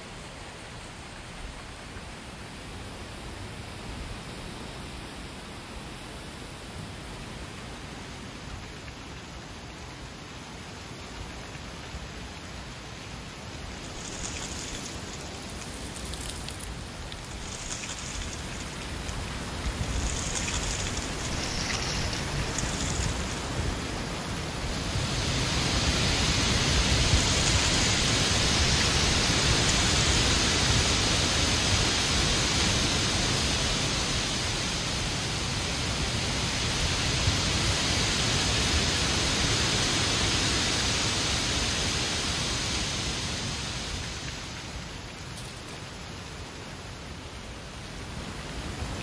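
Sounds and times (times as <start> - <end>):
strong wind gusting through trees: 0.0 - 49.0
dry leaves rustling: 13.3 - 31.9.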